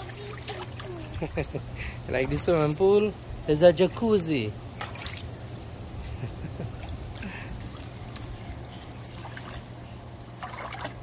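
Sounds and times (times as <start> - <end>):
hot tub jets bubbling water: 0.0 - 11.0
jet pump humming: 0.0 - 11.0.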